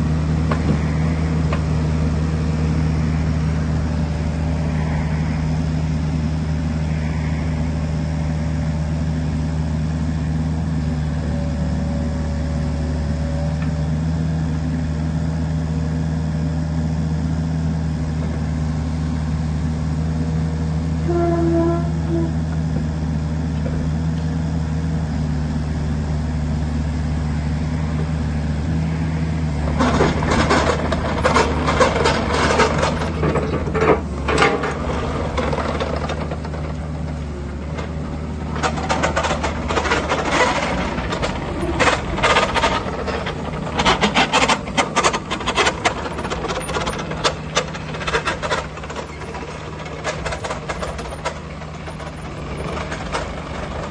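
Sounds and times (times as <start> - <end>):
excavator diesel engine running: 0.0 - 53.9
tracks clattering and rattling: 29.6 - 53.9.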